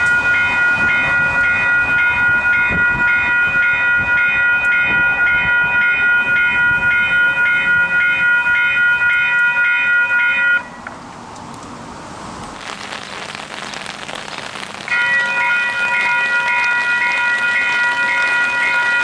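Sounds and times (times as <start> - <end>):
level-crossing bells ringing: 0.0 - 10.8, 14.9 - 19.0.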